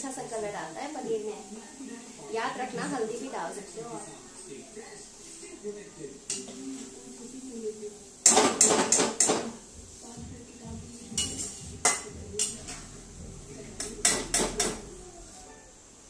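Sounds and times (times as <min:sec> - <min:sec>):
steel ladle clinking on a pan: 0:11.2 - 0:12.8.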